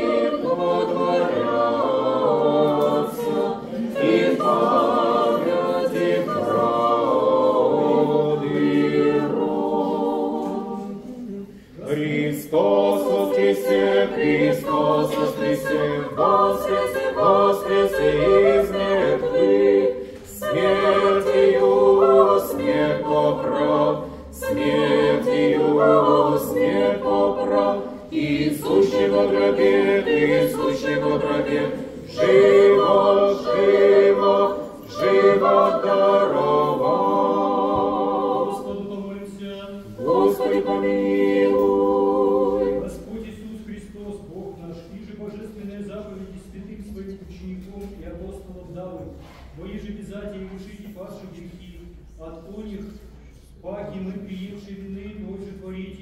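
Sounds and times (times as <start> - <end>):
church choir chanting: 0.0 - 44.6.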